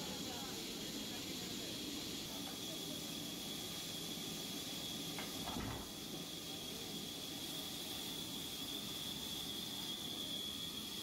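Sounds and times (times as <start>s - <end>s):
log saw hiss and whine: 0.0s - 11.0s.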